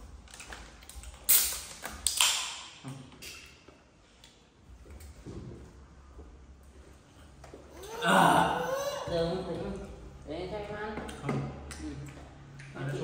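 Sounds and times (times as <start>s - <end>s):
can opening with fizz: 1.2s - 2.7s.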